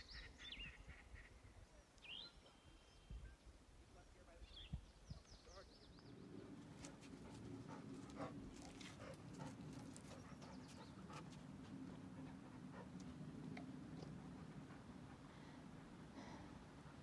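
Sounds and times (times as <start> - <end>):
dog panting: 6.4 - 17.0.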